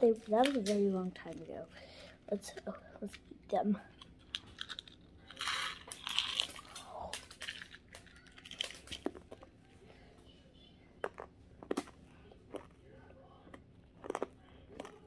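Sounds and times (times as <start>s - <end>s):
candies crunched between teeth: 3.9s - 9.5s.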